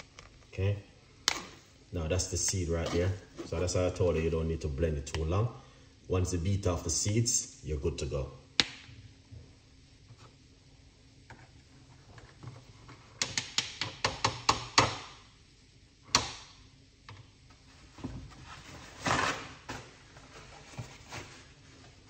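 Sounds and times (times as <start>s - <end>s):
rustling scrape: 18.3s - 22.0s.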